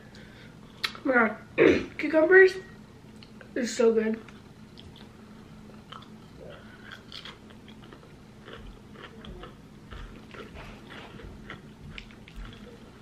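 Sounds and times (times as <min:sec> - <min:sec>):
chewing cucumber crunching: 0:04.3 - 0:13.0.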